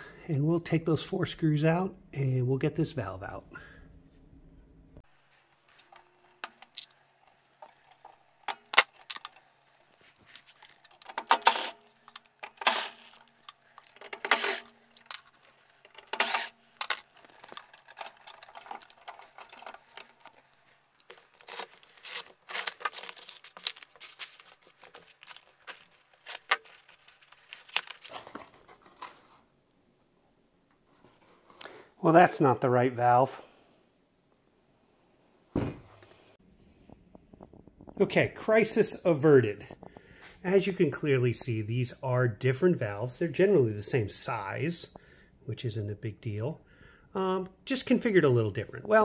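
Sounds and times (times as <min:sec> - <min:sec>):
metal parts and tools clinking: 0:10.2 - 0:27.0.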